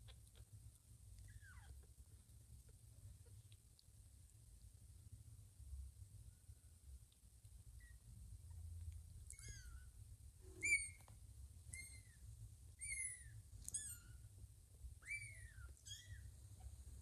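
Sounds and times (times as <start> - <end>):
kittens mewing: 9.3 - 9.9.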